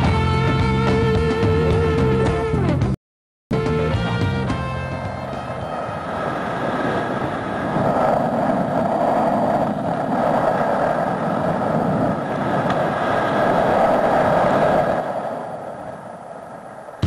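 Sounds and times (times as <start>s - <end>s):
wind rushing over helmet: 5.0s - 17.0s.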